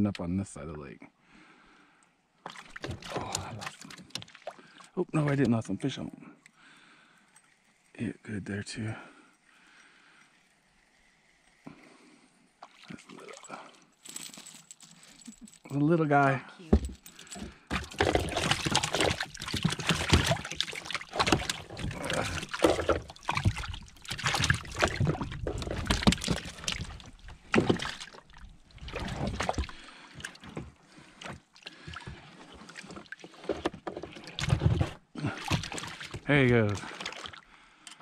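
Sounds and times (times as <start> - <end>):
knocks and bumps on plastic boat: 16.8 - 28.1.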